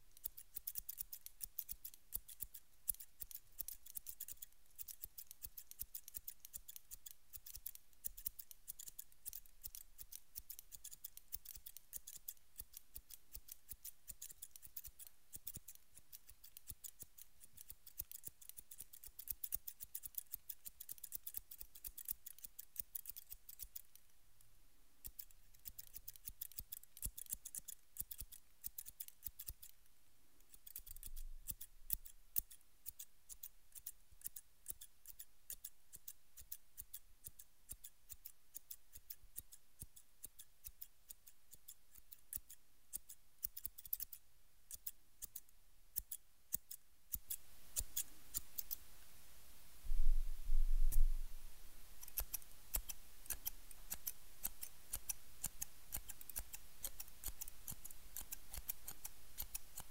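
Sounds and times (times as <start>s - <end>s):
scissors snipping: 0.2s - 24.0s, 25.0s - 29.8s, 30.5s - 40.9s, 46.0s - 48.8s, 52.0s - 59.9s.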